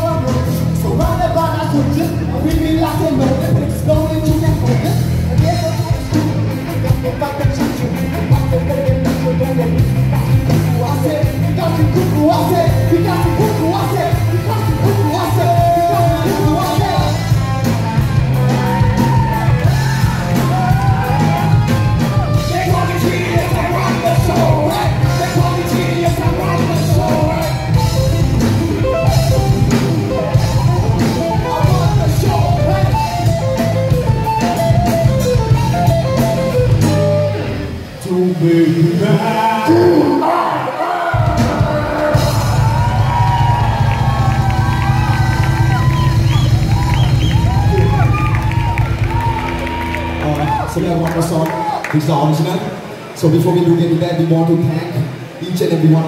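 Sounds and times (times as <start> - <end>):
rock band playing: 0.0 - 53.9
person singing: 18.5 - 36.2.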